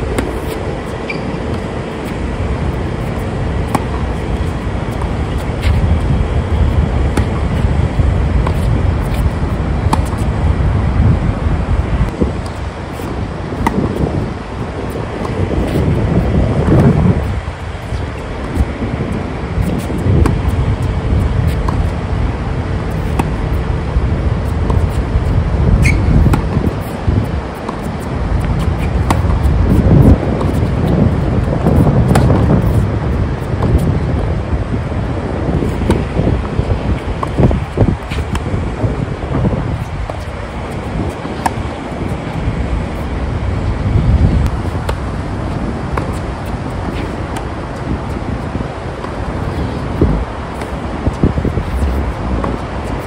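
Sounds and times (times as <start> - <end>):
wind rumble on microphone: 0.0 - 53.0
tennis ball hits and bounces: 0.1 - 2.0, 3.1 - 5.9, 7.0 - 7.6, 8.4 - 10.2, 12.4 - 14.1, 22.9 - 23.4, 24.7 - 25.0, 25.8 - 27.0, 27.6 - 31.0, 31.6 - 32.8, 35.6 - 36.5, 37.2 - 38.5, 40.1 - 42.0, 45.9 - 48.2
tennis ball being struck: 3.7 - 4.0, 9.9 - 10.2, 13.6 - 14.0, 32.1 - 32.4.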